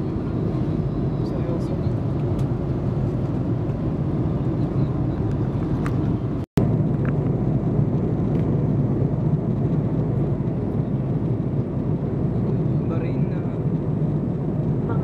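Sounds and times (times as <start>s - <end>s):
airliner cabin drone: 0.0s - 15.0s.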